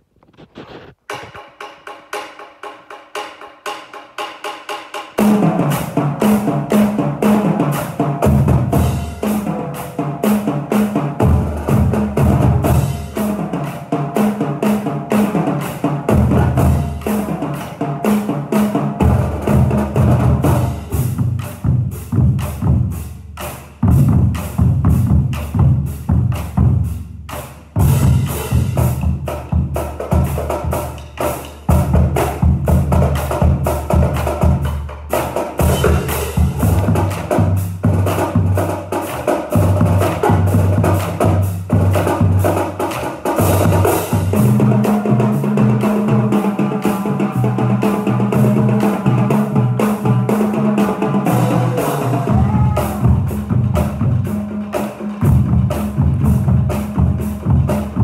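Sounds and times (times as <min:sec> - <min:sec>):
snare and tenor drums playing: 0:00.2 - 0:58.0.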